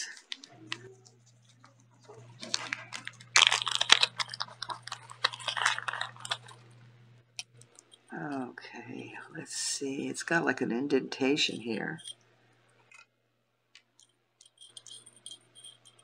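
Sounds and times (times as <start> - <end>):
plastic bag crinkling: 0.0 - 6.8
faint low hum: 0.0 - 13.0.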